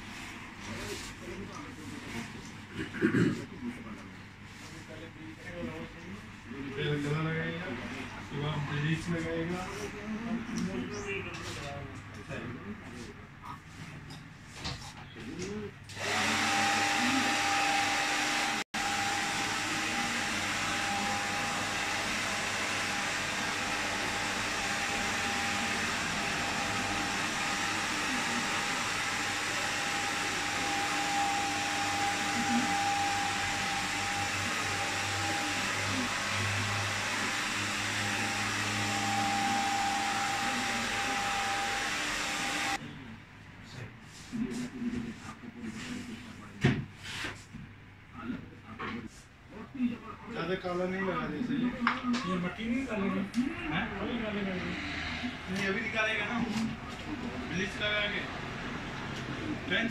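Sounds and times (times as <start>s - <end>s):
electric hair clippers running: 15.9s - 42.8s.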